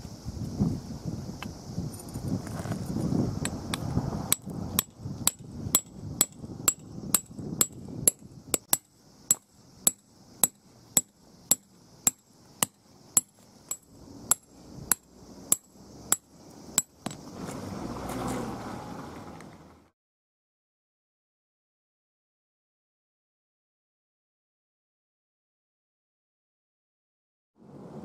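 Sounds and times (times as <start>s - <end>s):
gravel scraping: 2.0s - 5.1s, 17.0s - 19.8s
hammer striking tent peg: 4.3s - 17.2s.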